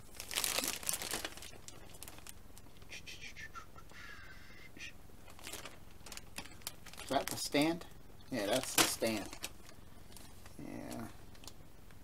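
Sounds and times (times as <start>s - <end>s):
plastic bags crinkling: 0.0s - 2.4s, 5.2s - 11.6s.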